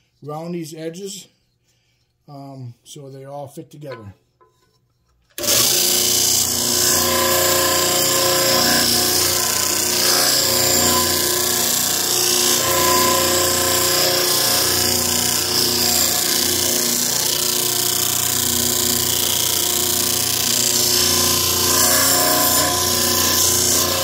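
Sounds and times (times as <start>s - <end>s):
sander motor hum: 5.4s - 24.0s.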